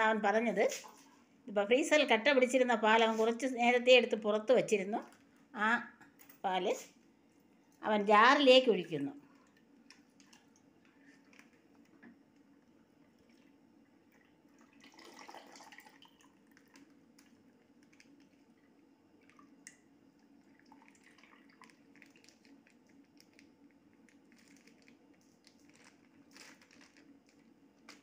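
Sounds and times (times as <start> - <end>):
milk squishing and dripping: 9.2 - 28.0
plastic packet crinkling: 16.4 - 18.5, 21.0 - 28.0.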